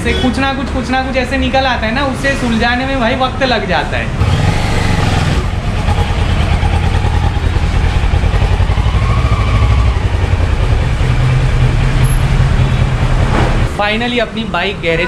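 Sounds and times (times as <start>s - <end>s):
motorcycle engine running: 4.2s - 13.7s.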